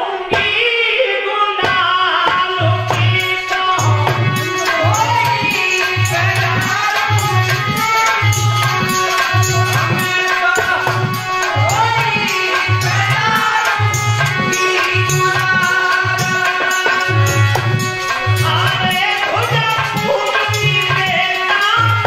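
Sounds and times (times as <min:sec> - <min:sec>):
harmonium: 0:00.0 - 0:22.0
person singing: 0:00.0 - 0:22.0
hand drum beat: 0:01.6 - 0:22.0.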